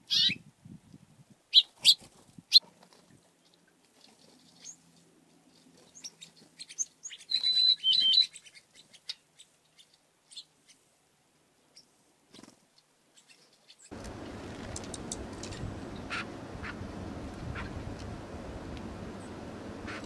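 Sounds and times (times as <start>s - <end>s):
songbirds chirping: 3.2s - 11.0s, 13.1s - 20.0s
bird whistled notes: 7.1s - 8.4s
steady hiss: 13.9s - 20.0s.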